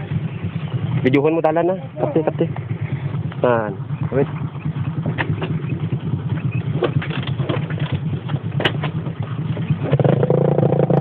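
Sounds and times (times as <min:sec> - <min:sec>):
motorcycle engine running: 0:00.0 - 0:11.0
knocks and rattles: 0:04.0 - 0:10.3.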